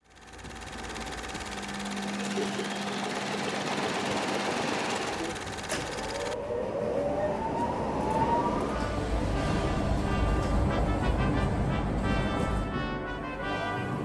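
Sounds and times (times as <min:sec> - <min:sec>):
washing machine drum humming: 0:00.0 - 0:06.4.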